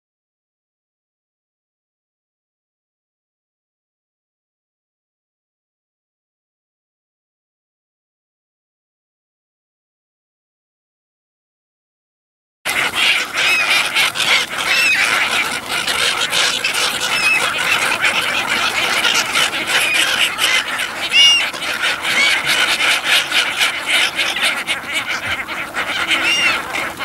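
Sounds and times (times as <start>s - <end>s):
flock of gulls calling: 12.7s - 27.0s.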